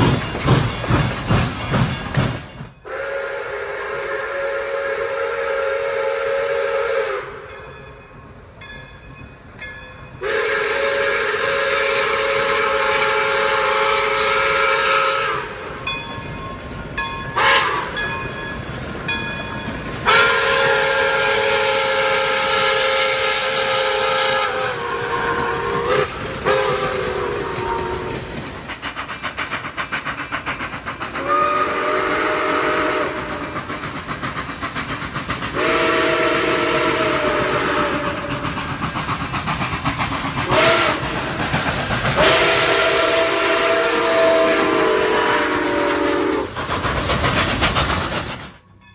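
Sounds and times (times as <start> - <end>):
steam locomotive whistle blasts: 2.8 - 7.6, 10.2 - 15.8, 16.7 - 18.1, 20.0 - 28.3, 31.2 - 33.7, 35.5 - 38.5, 40.4 - 41.2, 42.1 - 46.6
hiss of steam: 19.8 - 48.6.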